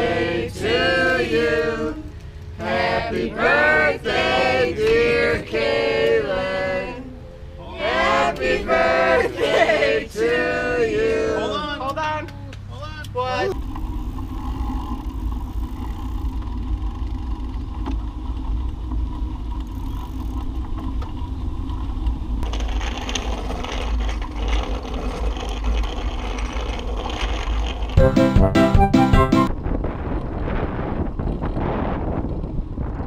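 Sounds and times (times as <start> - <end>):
bike tyres on asphalt: 11.9 - 28.5, 29.4 - 33.0
wind rumbling on microphone: 13.5 - 28.0, 29.5 - 33.0.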